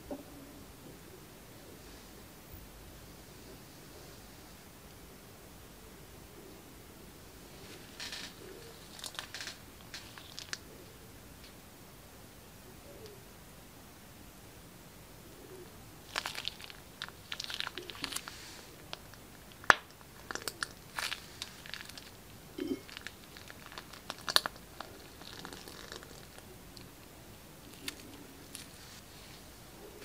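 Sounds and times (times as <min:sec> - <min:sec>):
plastic bag crinkling: 0:08.0 - 0:10.6, 0:16.0 - 0:26.9.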